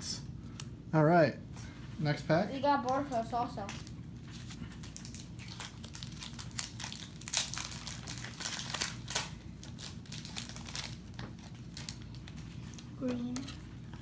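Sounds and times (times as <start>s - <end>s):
foil wrappers crinkling: 3.1s - 12.9s.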